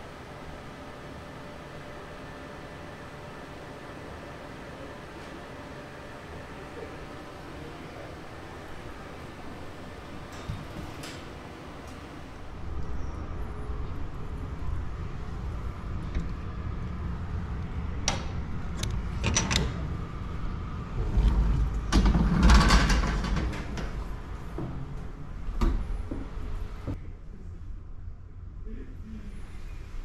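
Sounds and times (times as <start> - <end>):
low hum: 0.0 - 30.0
door clattering open: 21.8 - 24.1.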